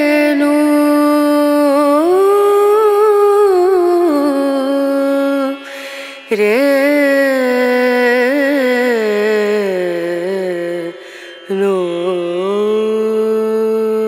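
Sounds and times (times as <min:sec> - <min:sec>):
solo voice singing long notes: 0:00.0 - 0:14.0.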